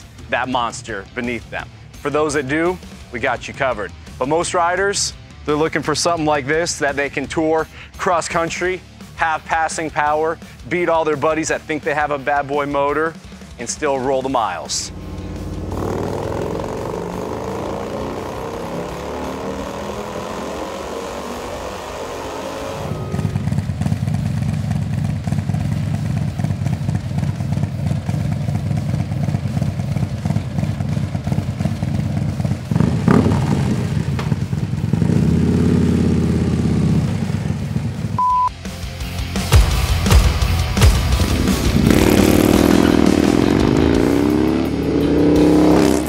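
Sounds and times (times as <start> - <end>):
motorcycle engine idling: 9.8 - 22.2, 22.8 - 38.2, 39.4 - 45.6
motorcycle engine revving: 11.4 - 38.2, 39.5 - 46.0.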